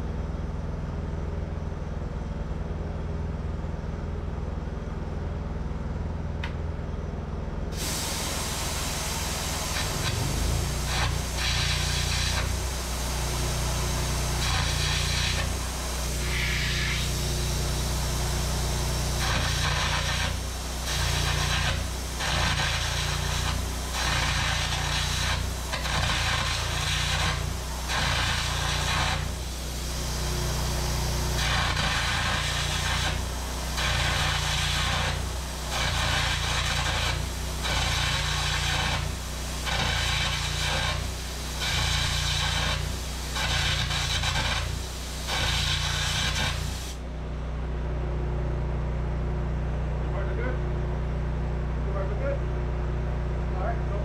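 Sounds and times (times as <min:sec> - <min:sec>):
steady low hum: 0:00.0 - 0:43.9, 0:47.0 - 0:54.0
cutting torch hissing: 0:07.7 - 0:47.0.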